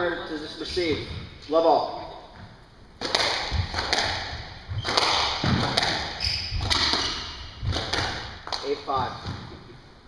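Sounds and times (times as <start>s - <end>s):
squash ball cracking off walls: 3.0s - 9.6s.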